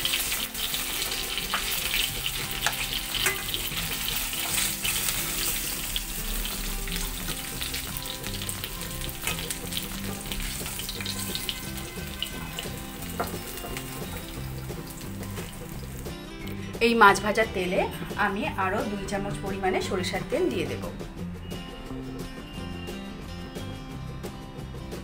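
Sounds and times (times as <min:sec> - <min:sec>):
fish sizzling in hot oil: 0:00.0 - 0:16.6.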